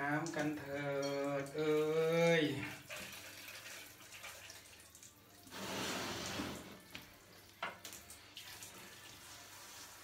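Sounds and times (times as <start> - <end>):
hand shower spraying water: 5.5 - 7.0, 7.9 - 10.0.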